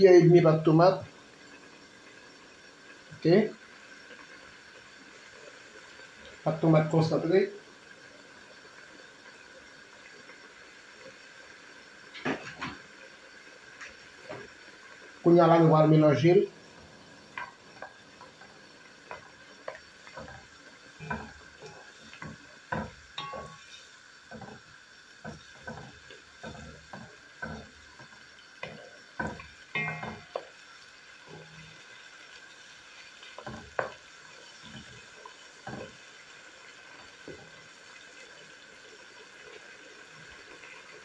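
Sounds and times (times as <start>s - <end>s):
sauce simmering: 0.0s - 41.0s
spatula scraping a pan: 17.4s - 30.6s, 33.3s - 36.3s.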